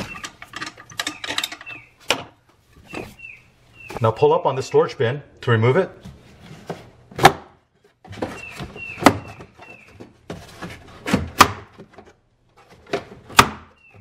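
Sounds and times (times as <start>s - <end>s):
plastic rubbing squeaks: 0.0s - 2.1s, 2.7s - 4.0s, 7.9s - 11.4s
sharp plastic knocks and clicks: 12.8s - 14.0s.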